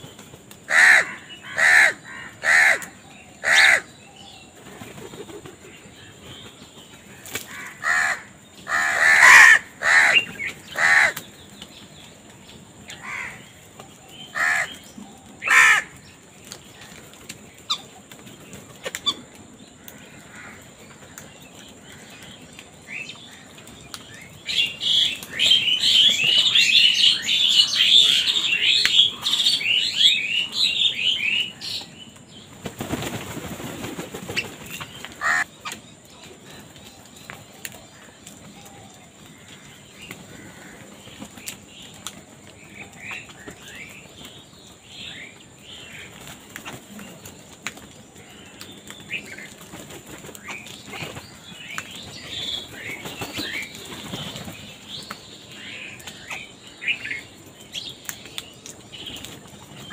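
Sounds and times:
crows cawing: 0:00.7 - 0:03.9, 0:07.5 - 0:11.2, 0:13.0 - 0:13.5, 0:14.3 - 0:14.8, 0:15.4 - 0:16.0, 0:19.8 - 0:21.1, 0:35.2 - 0:35.5, 0:39.3 - 0:41.0
rapid high chattering calls: 0:00.7 - 0:03.9, 0:07.2 - 0:11.4, 0:14.2 - 0:16.1, 0:32.8 - 0:35.8.

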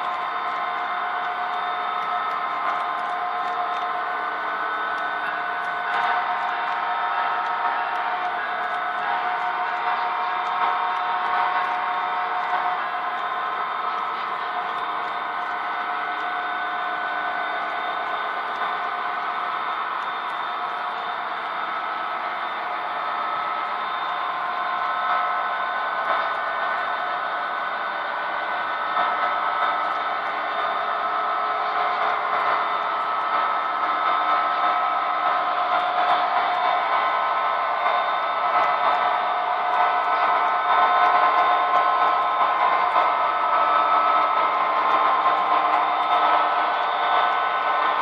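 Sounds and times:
model train cars rolling: 0:00.0 - 0:48.0.

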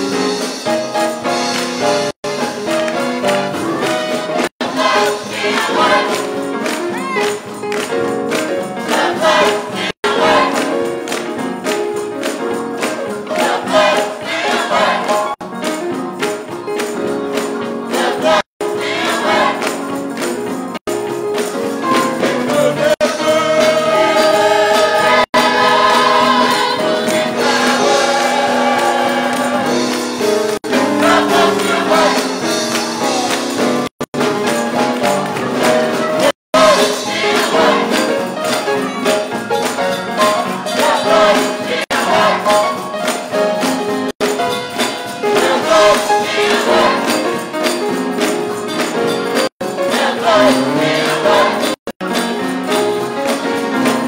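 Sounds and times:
instrumental accompaniment: 0:00.0 - 0:54.0
gospel choir singing: 0:02.3 - 0:06.8, 0:08.6 - 0:11.2, 0:13.0 - 0:15.4, 0:17.7 - 0:20.0, 0:21.8 - 0:33.7, 0:36.0 - 0:39.4, 0:40.2 - 0:43.4, 0:44.8 - 0:48.0, 0:49.6 - 0:51.9.

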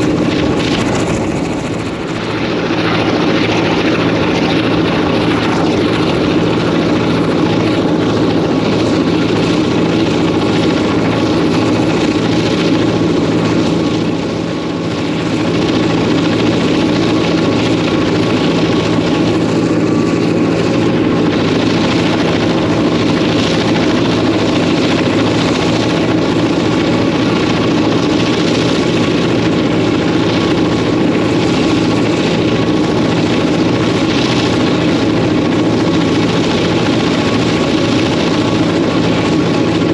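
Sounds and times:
diesel locomotive engine drone: 0:00.0 - 0:39.9.

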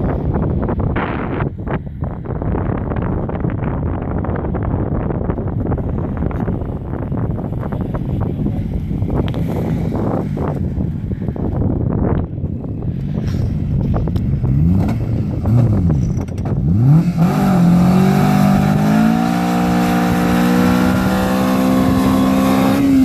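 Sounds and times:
car engine revving: 0:05.7 - 0:11.6, 0:12.8 - 0:23.0.

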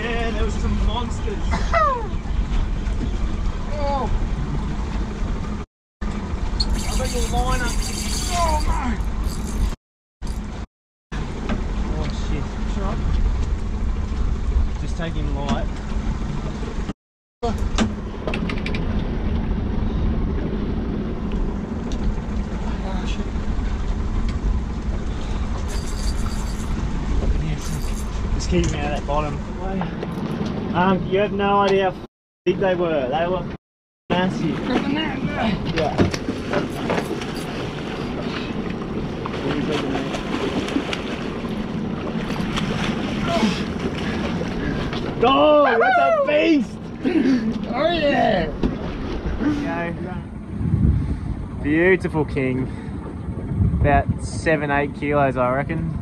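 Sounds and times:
wind and water rumble: 0:00.0 - 0:56.0
fishing reels clicking: 0:06.6 - 0:09.8
wind buffeting microphone: 0:47.6 - 0:56.0.

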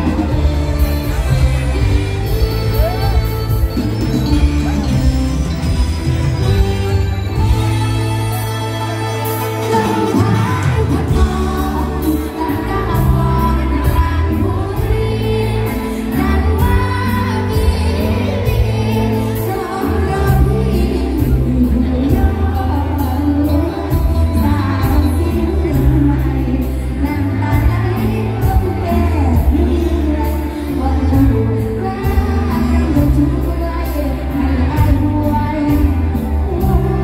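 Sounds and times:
person singing: 0:07.6 - 0:37.0.

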